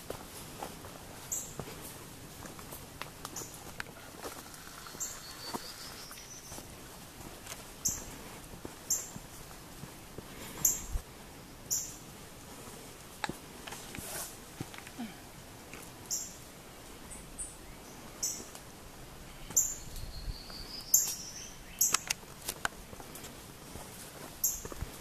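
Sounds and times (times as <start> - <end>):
small birds chirping: 1.2 - 1.6, 3.3 - 6.7, 7.8 - 8.2, 8.8 - 9.2, 11.6 - 12.0, 16.1 - 16.4, 17.0 - 18.6, 19.2 - 22.2, 24.4 - 24.9.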